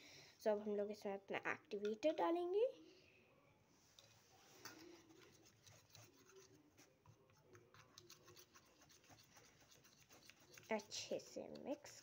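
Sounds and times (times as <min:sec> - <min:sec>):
plastic spoon scraping steel bowl: 0:04.6 - 0:06.8, 0:07.5 - 0:12.0.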